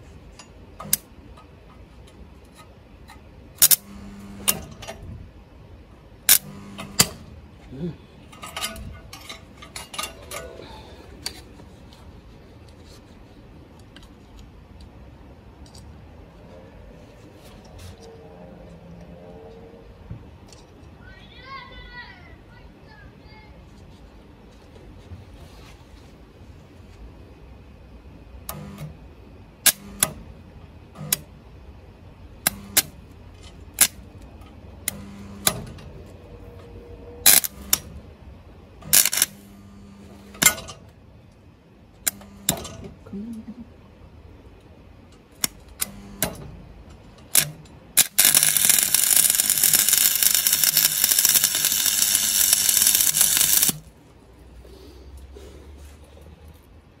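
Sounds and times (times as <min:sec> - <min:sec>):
welding arc crackling: 0:03.6 - 0:04.8, 0:06.3 - 0:07.3, 0:37.2 - 0:37.9, 0:38.9 - 0:39.8, 0:47.3 - 0:53.9.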